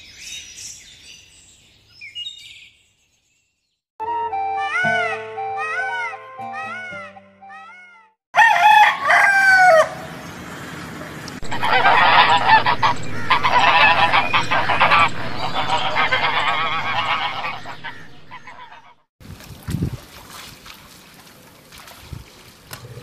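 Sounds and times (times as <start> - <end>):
loud call: 11.4 - 19.0
geese honking and cackling: 11.4 - 19.1.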